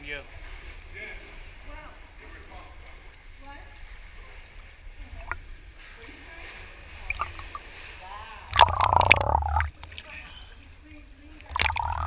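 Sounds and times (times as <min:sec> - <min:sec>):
seawater lapping: 0:00.0 - 0:12.0
underwater bubbling rush: 0:06.9 - 0:07.8, 0:08.4 - 0:10.2, 0:11.5 - 0:12.0.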